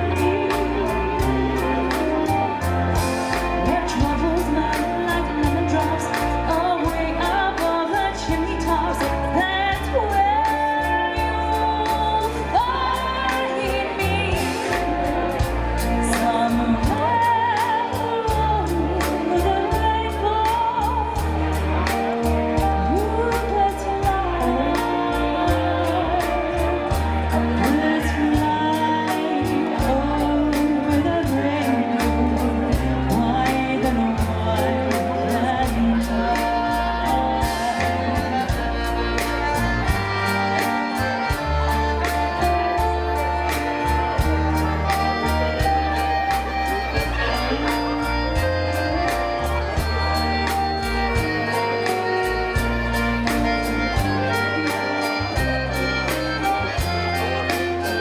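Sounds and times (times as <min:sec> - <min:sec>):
accordion: 0:00.0 - 0:58.0
electric guitar: 0:00.0 - 0:58.0
person singing: 0:00.0 - 0:58.0
polka band music: 0:00.0 - 0:58.0.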